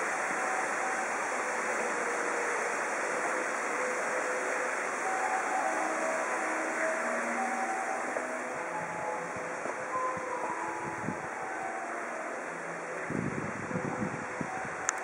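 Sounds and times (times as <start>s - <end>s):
steady rushing noise: 0.0s - 15.0s.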